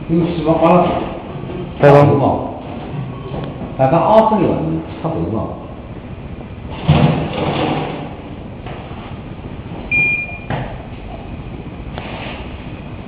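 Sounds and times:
short high beep: 9.9 - 10.5.

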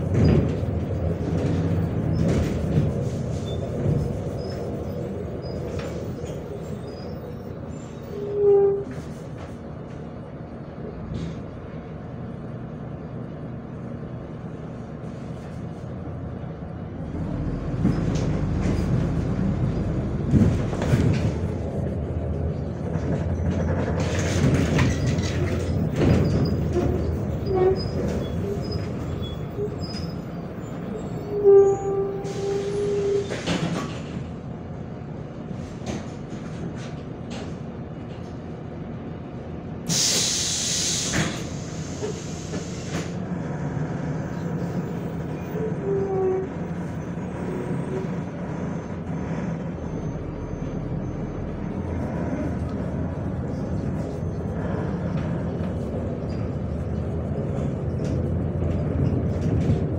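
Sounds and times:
bus engine and running gear: 0.0 - 59.9
sharp air hiss: 39.9 - 43.2.

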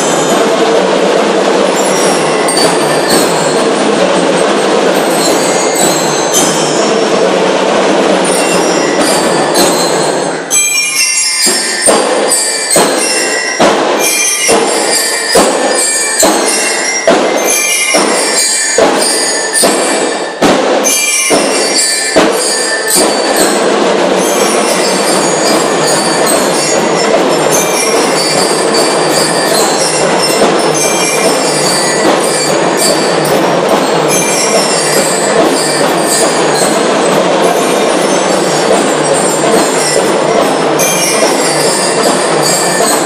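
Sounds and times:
bell lyres ringing: 0.0 - 43.0
marching drums: 0.0 - 43.0.

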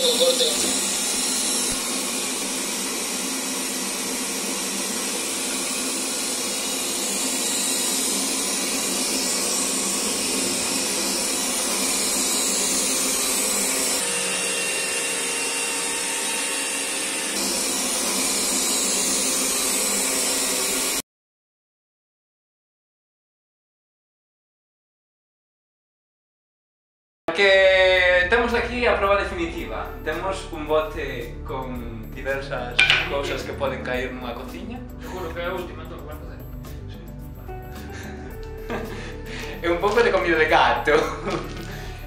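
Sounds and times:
robot vacuum whirring: 0.0 - 21.0.

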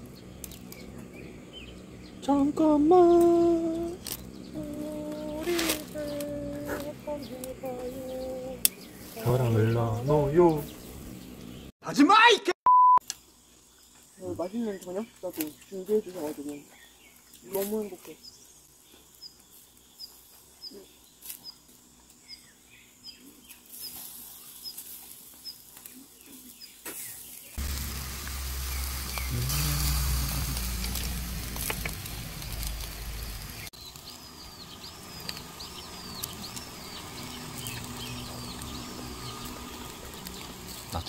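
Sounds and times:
birds chirping: 0.0 - 12.0, 13.2 - 41.0
low rumble: 27.6 - 33.7.

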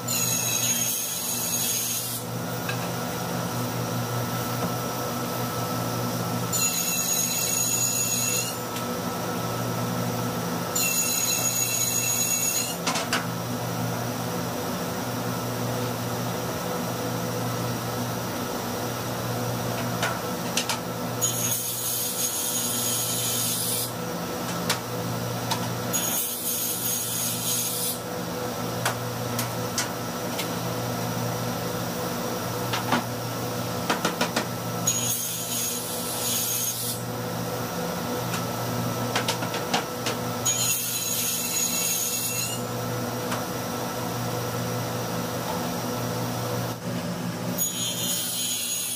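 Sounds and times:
table saw cutting wood: 0.0 - 2.4, 6.5 - 8.8, 10.7 - 12.9, 21.2 - 24.0, 25.9 - 28.1, 34.8 - 37.0, 40.4 - 42.7, 47.5 - 48.9.

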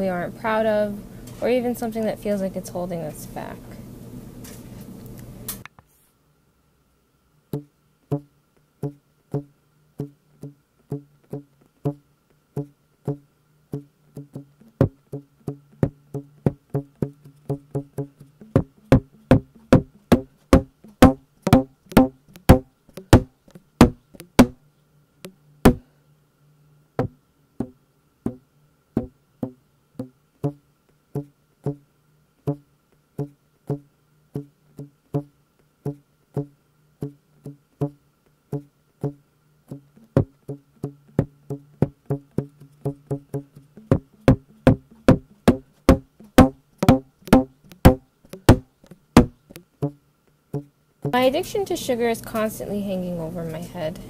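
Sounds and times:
low steady hum: 0.0 - 54.0
wooden knocks: 17.5 - 24.6, 42.9 - 49.6.

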